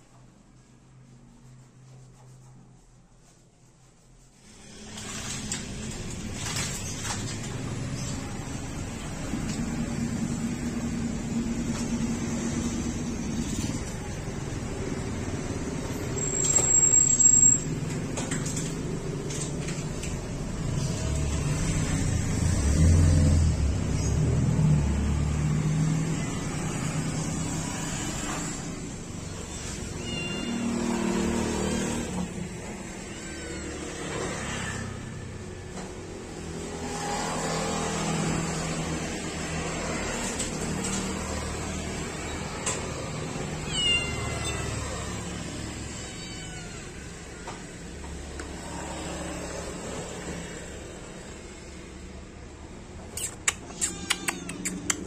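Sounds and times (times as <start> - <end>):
kittens meowing: 29.9 - 30.8, 43.6 - 45.2, 45.8 - 47.4, 53.2 - 55.0.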